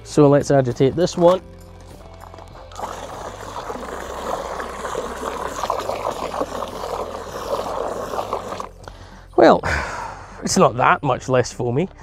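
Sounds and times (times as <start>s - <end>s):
spray gun jet into bucket of water: 2.2s - 8.9s.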